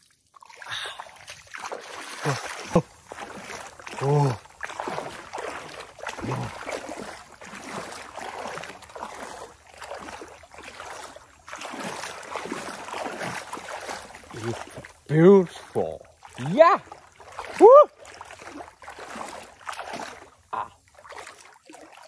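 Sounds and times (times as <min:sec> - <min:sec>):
muddy water sloshing and splashing: 0:00.0 - 0:22.0
person grunting: 0:04.0 - 0:04.4, 0:06.2 - 0:06.6, 0:20.6 - 0:20.8.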